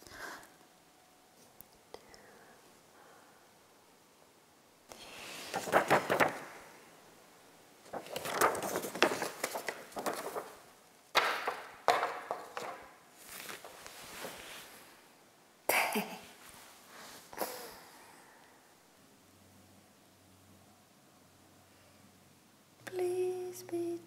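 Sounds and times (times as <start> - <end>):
paper rustling and crackling: 5.0 - 6.8, 7.8 - 14.9.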